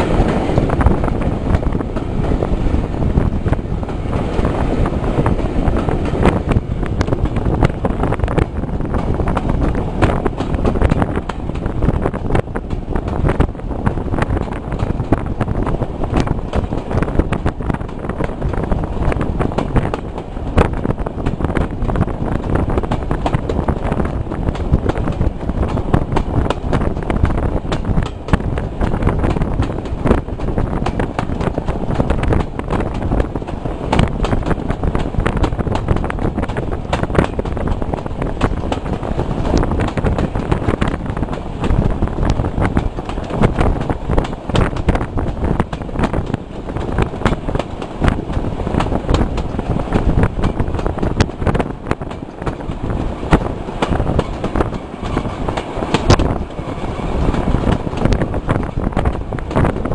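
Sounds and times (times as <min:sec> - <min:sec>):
moving train rumble: 0:00.0 - 0:59.9
train wheels clicking on track: 0:00.0 - 0:59.9
wind buffeting microphone: 0:00.0 - 0:59.9.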